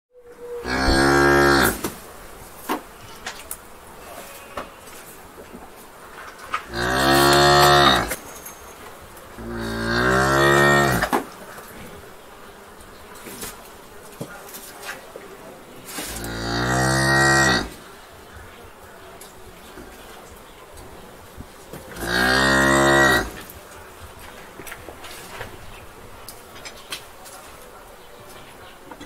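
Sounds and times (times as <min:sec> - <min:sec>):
low barn background: 0:00.1 - 0:29.0
cows mooing: 0:00.6 - 0:01.8, 0:06.7 - 0:08.2, 0:09.4 - 0:11.1, 0:16.1 - 0:17.8, 0:21.9 - 0:23.5.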